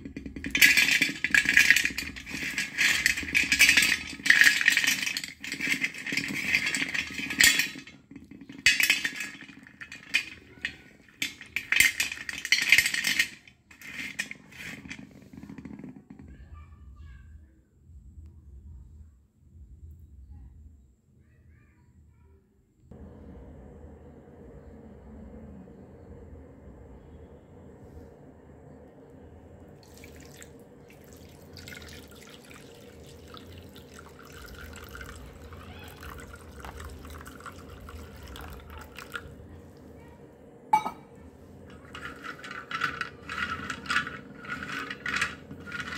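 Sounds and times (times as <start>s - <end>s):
slate pencils clattering: 0.0s - 15.9s, 31.0s - 39.3s, 41.6s - 45.9s
water splashing and trickling: 29.8s - 39.2s.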